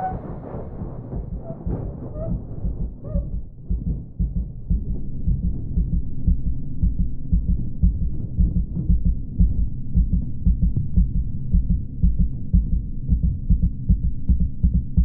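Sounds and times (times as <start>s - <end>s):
faint steady hum: 0.0s - 15.0s
low fast throbbing pulses: 0.0s - 15.0s.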